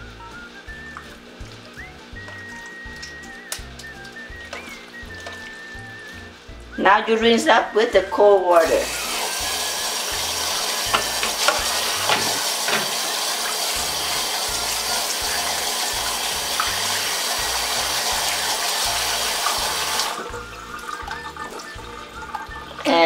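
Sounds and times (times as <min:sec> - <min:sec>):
faucet running into a bowl: 0:00.8 - 0:06.2, 0:08.2 - 0:23.0.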